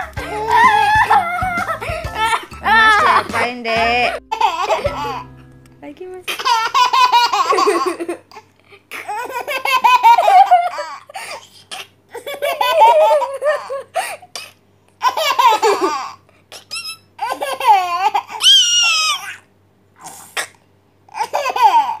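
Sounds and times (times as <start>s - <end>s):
baby squealing: 0.0s - 3.1s, 16.6s - 17.4s, 18.0s - 19.4s
baby laughing: 0.0s - 5.3s, 6.3s - 14.1s, 15.0s - 19.3s, 21.1s - 22.0s.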